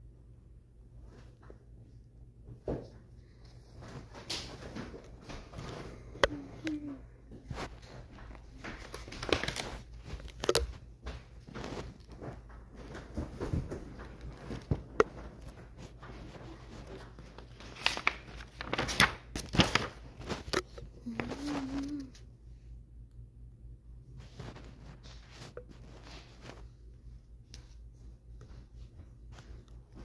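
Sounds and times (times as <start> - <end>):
paper rustling and crinkling: 3.7 - 22.2, 24.2 - 26.9.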